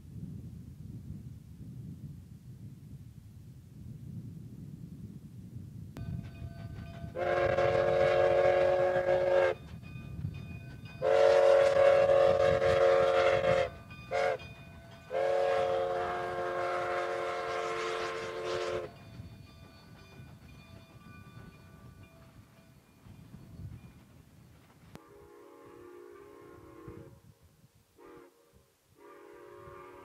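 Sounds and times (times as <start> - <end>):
train rumble and rail clatter: 5.9 - 27.0
steam locomotive whistle blasts: 7.1 - 9.7, 11.0 - 14.5, 15.1 - 19.0, 25.0 - 27.3, 28.0 - 30.0.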